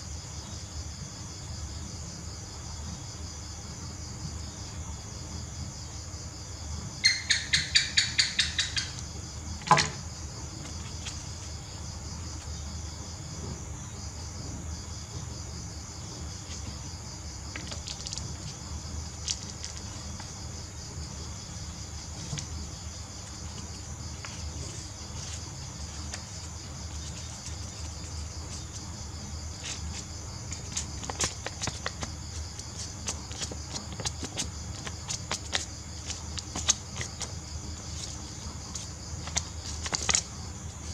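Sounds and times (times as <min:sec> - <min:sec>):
crickets chirping: 0:00.0 - 0:40.9
loud sharp chirps: 0:07.0 - 0:09.0
stiff paper crinkling: 0:17.5 - 0:20.4, 0:21.6 - 0:40.9.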